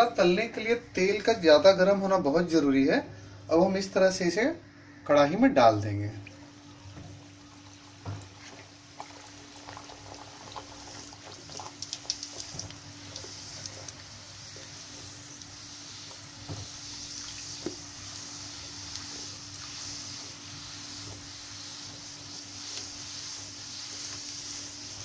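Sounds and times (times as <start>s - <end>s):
dough deep-frying in oil: 6.4s - 25.0s.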